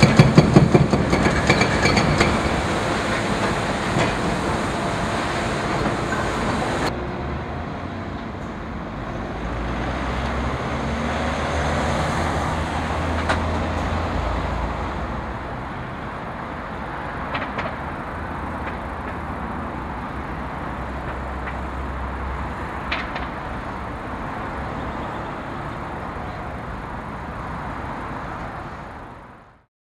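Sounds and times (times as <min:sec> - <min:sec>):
road traffic noise: 0:00.0 - 0:29.7.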